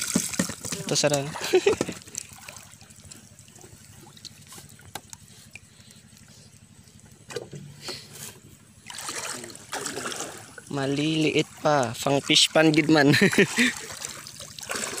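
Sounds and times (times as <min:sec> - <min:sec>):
water splashing rush: 0:00.0 - 0:04.6, 0:08.8 - 0:15.0
faint water sounds: 0:00.0 - 0:15.0.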